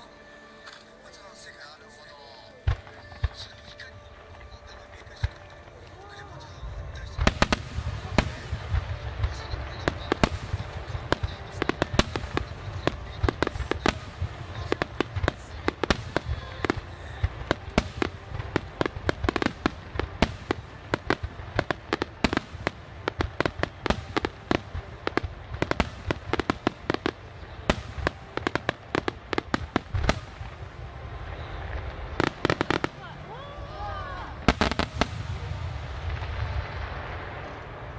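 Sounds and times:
fireworks bangs and crackling: 0.0s - 37.9s
steady low rumble: 4.1s - 33.7s.

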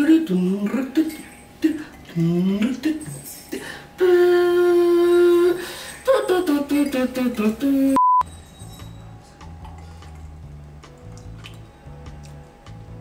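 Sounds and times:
man humming: 4.0s - 5.6s
censor bleep: 8.0s - 8.2s.

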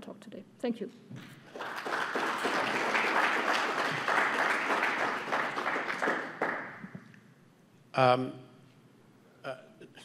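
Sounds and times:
audience applauding: 1.4s - 6.9s.

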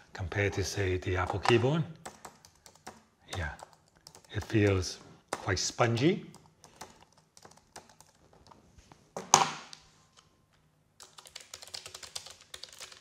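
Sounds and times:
keyboard typing: 1.3s - 5.6s, 6.3s - 8.6s, 11.0s - 13.0s.

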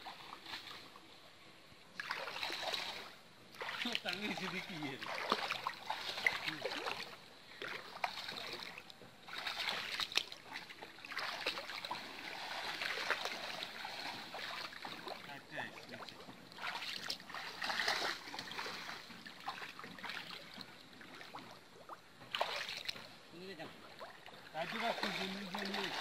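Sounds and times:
water splashing and sloshing: 0.0s - 26.0s.

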